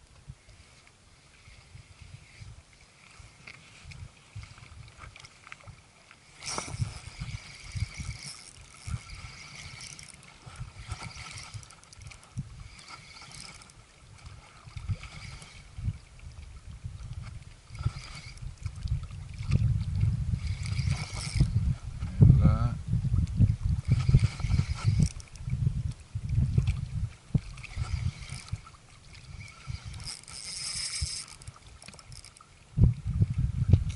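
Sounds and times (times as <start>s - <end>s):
spinning reel whirring: 6.2s - 15.8s, 17.1s - 21.8s, 23.6s - 25.4s, 27.3s - 32.5s.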